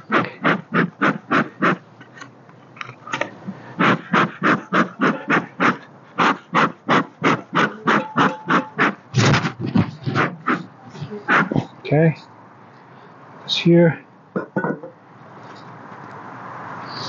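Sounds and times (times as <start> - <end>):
bellows puffing: 0.0 - 1.8, 3.5 - 11.8.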